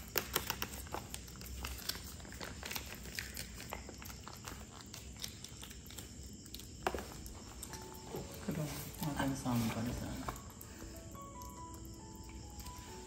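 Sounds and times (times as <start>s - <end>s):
kitten chewing: 0.0s - 9.0s.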